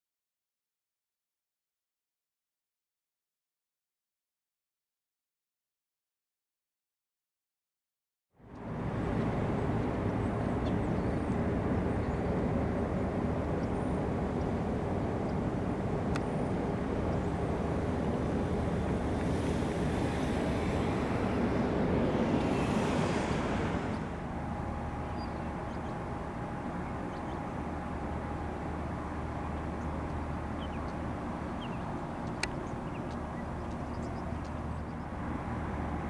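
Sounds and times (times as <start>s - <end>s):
helicopter turbine rumble: 8.4s - 36.0s
steady turbine whine: 8.4s - 36.0s.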